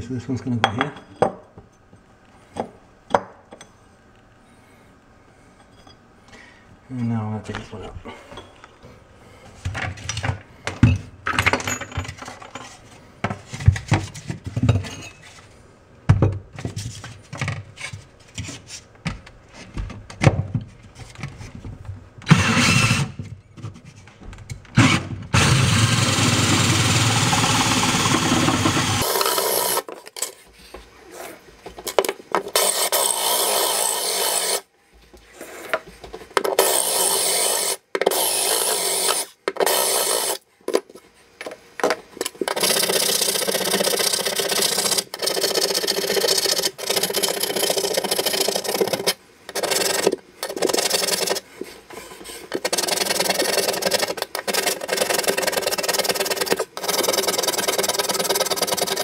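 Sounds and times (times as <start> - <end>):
drill hole saw grinding tile: 22.3 - 23.2, 24.8 - 29.9, 32.5 - 34.7, 36.5 - 40.4, 42.5 - 51.4, 52.5 - 59.0.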